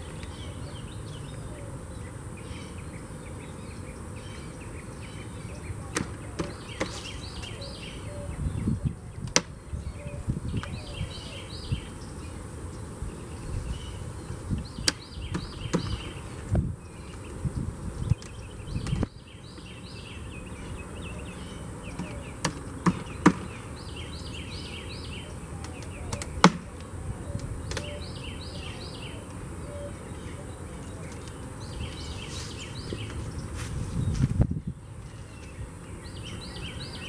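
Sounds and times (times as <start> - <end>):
songbird chirping: 0.0 - 37.0
knocks on wooden hive boxes: 22.0 - 23.5.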